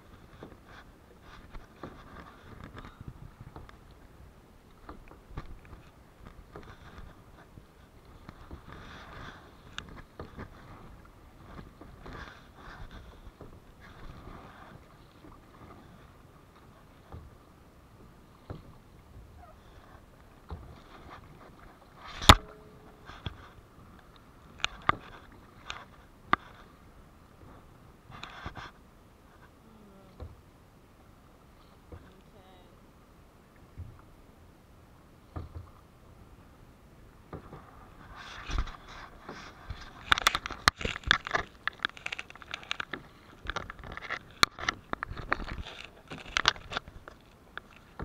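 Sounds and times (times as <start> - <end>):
paddle splashing in water: 0.0 - 30.5, 35.2 - 48.0
paddle knocks: 20.2 - 26.5, 35.2 - 35.8.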